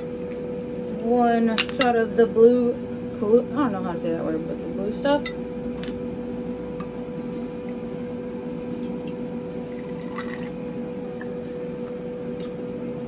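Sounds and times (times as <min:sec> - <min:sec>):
steady low hum: 0:00.0 - 0:13.0
liquid pouring into a glass: 0:09.7 - 0:10.6.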